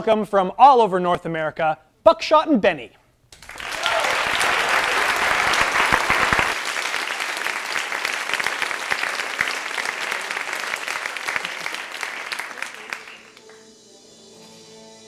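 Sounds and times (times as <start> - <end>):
audience applauding: 3.4 - 13.6.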